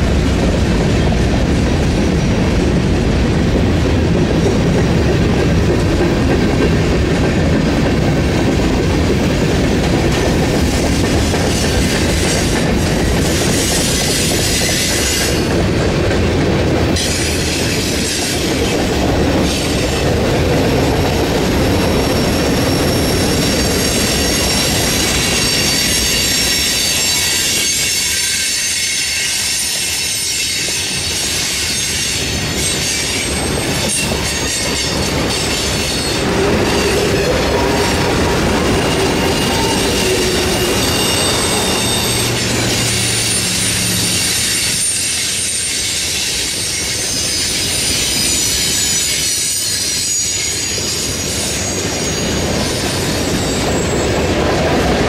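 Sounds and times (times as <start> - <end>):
freight train wheels rumbling: 0.0 - 55.0
wheel squeal: 21.6 - 54.3.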